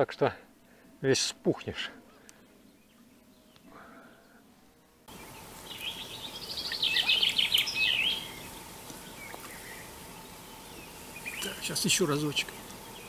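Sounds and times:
outdoor background hiss: 0.0s - 13.0s
faint bird chirp: 2.1s - 13.0s
songbird trilling: 5.1s - 13.0s.

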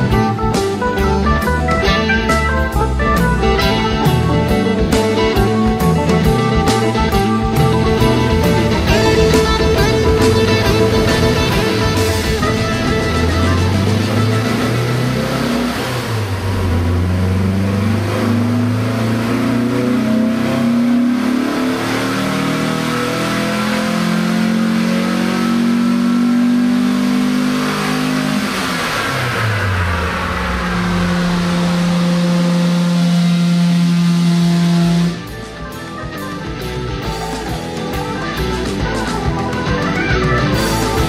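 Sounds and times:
car engine revving: 0.0s - 41.0s.

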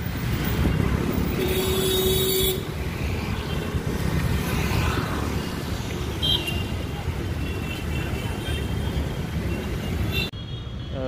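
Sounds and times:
street traffic: 0.0s - 11.0s
vehicle horn: 1.3s - 2.7s.

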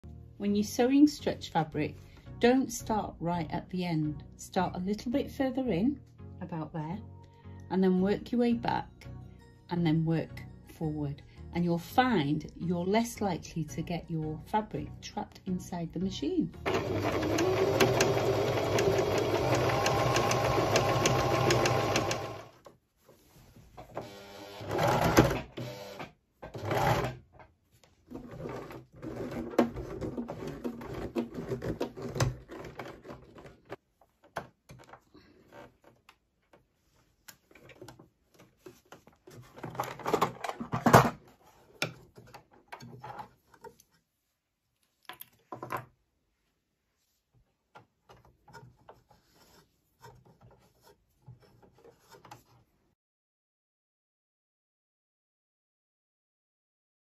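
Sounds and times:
sewing machine stitching: 16.6s - 22.6s, 24.0s - 27.2s, 28.1s - 33.4s.

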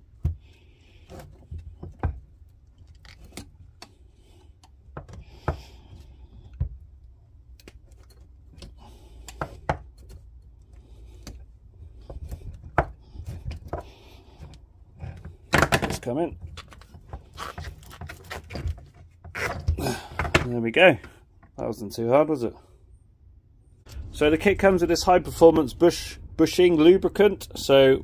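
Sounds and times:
screwdriver scraping and knocking: 12.0s - 20.5s.

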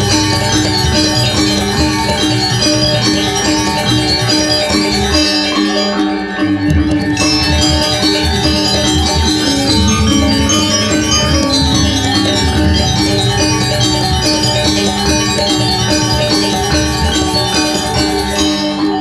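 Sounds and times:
gamelan metallophones ringing: 0.0s - 19.0s
deep low pulse: 9.2s - 14.9s.

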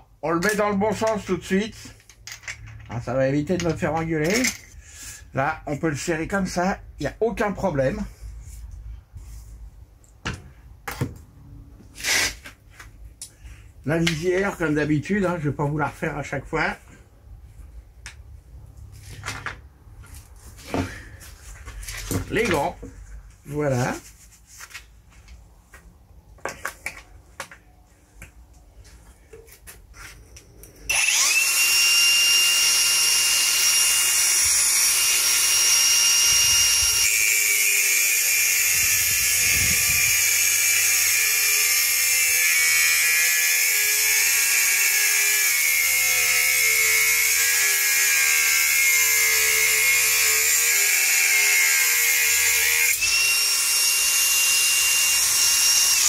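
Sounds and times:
angle grinder whining: 30.9s - 56.0s
grinder disc cutting under load: 30.9s - 56.0s.

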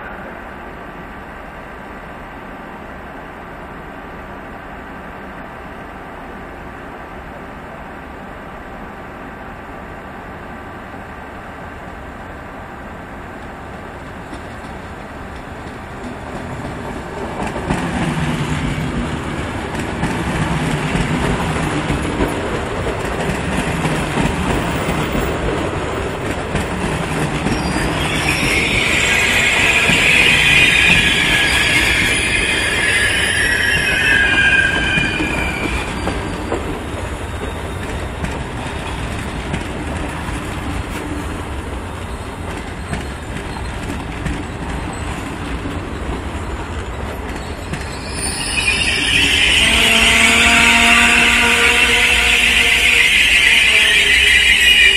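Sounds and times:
train wheel and rail noise: 0.0s - 54.9s
train wheels squealing: 26.6s - 40.2s, 41.9s - 54.9s.

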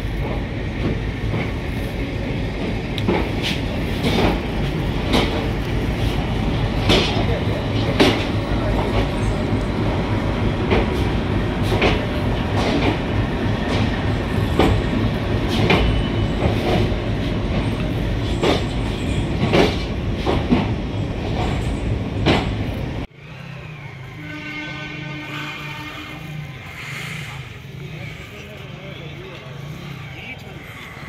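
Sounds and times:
train rumbling inside coach: 0.0s - 31.0s
wheels clacking over rail joints: 2.6s - 23.1s.

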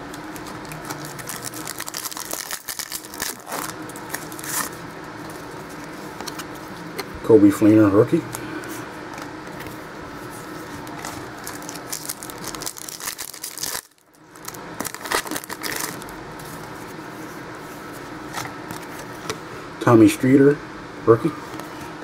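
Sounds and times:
foil wrappers crinkling: 0.3s - 6.4s, 10.5s - 16.2s.

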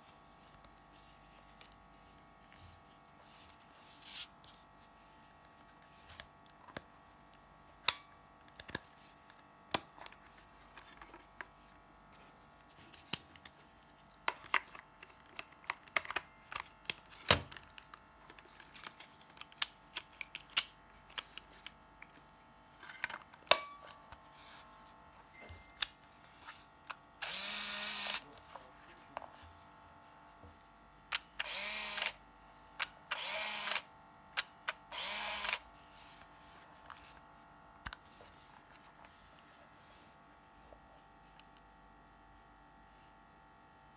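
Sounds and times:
camera film-advance motor whirring: 27.2s - 28.2s, 31.1s - 32.2s, 32.8s - 33.9s, 34.7s - 35.6s.

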